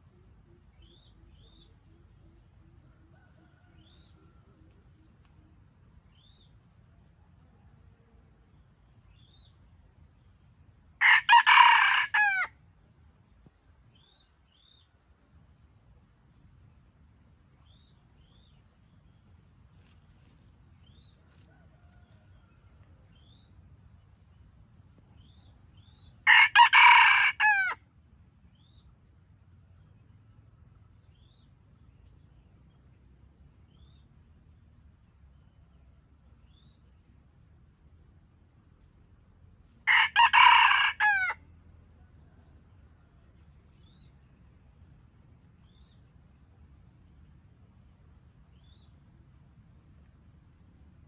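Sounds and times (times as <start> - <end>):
rooster crowing: 3.0 - 4.4, 11.0 - 12.6, 26.2 - 27.8, 39.8 - 41.4.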